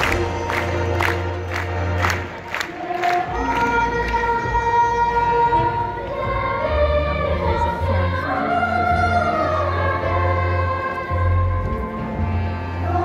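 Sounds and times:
choir singing long notes: 0.0 - 13.0
low instrumental bass: 3.3 - 13.0.

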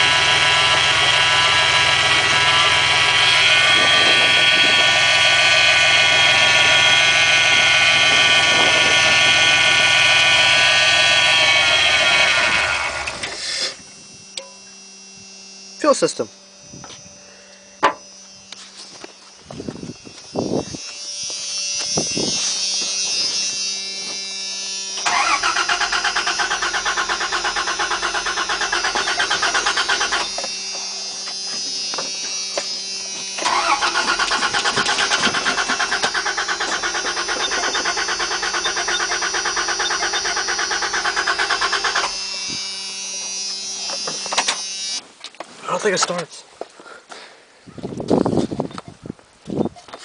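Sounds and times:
starter cranking engine: 0.0 - 13.5, 25.0 - 30.4, 33.4 - 42.3.

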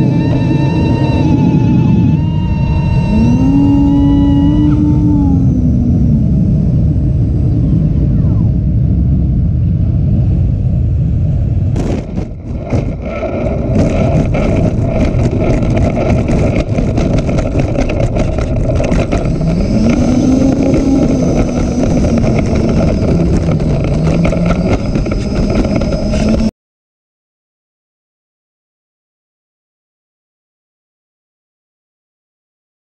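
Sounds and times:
thin high whine: 0.0 - 8.7, 12.0 - 26.5
electric ducted fans whirring: 0.0 - 26.5
rushing air: 0.0 - 26.5.

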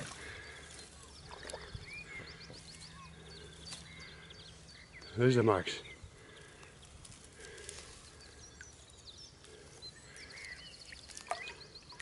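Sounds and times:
bird chirps: 0.0 - 12.0
bird trill: 8.2 - 12.0.

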